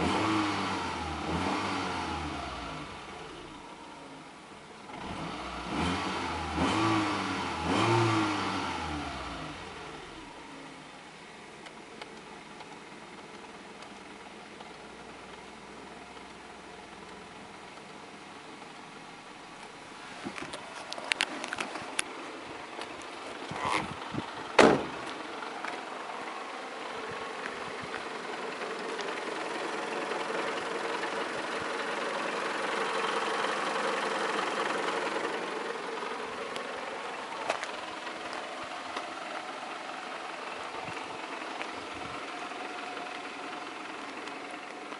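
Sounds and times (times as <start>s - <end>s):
car engine idling: 0.0s - 44.9s
car door shutting: 24.5s - 25.2s.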